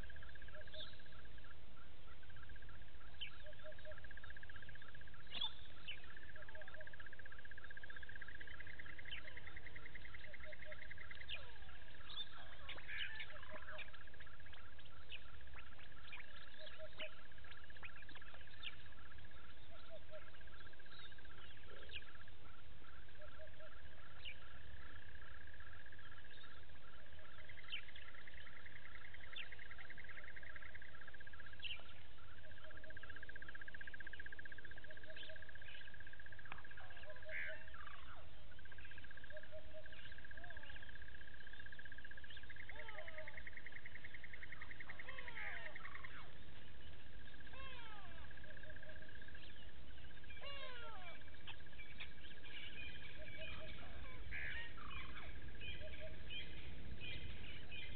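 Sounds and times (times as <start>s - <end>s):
bird chirps: 0.0s - 57.9s.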